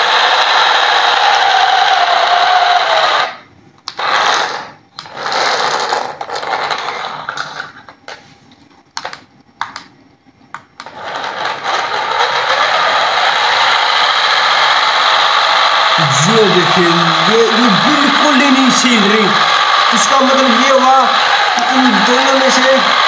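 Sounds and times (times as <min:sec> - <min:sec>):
toy car motors whirring: 0:00.0 - 0:07.7, 0:10.8 - 0:23.0.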